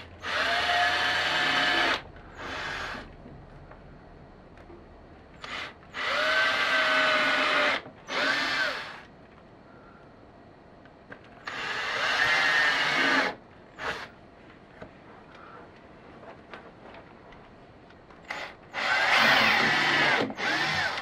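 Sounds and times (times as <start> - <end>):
cordless drill whining: 0.2 - 3.1, 5.4 - 9.1, 11.4 - 14.1, 18.3 - 21.0.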